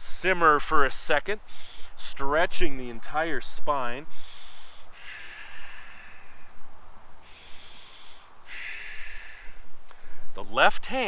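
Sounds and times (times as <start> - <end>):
person breathing deeply: 1.4 - 2.0, 4.1 - 10.3.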